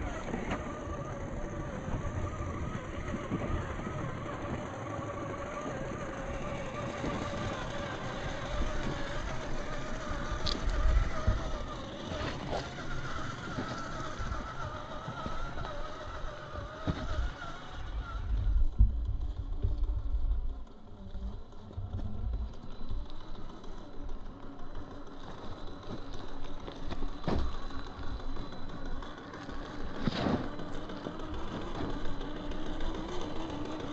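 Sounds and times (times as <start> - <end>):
toy car motor whining: 0.0 - 33.9
low rumbling thumps: 16.0 - 23.4.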